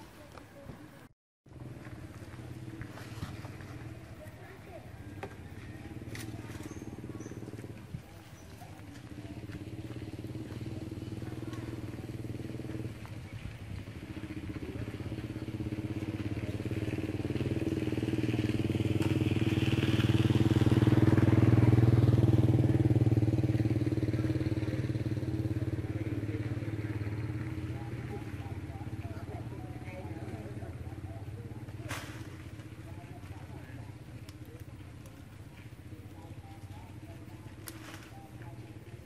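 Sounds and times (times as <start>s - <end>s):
motor engine passing by: 1.5s - 39.0s.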